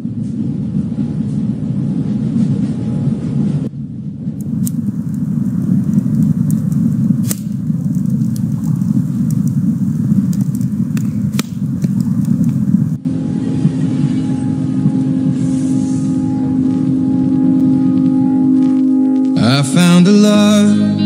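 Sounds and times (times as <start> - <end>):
wood fire crackling: 4.4 - 13.0, 14.8 - 20.6
soft music with held notes: 13.0 - 21.0.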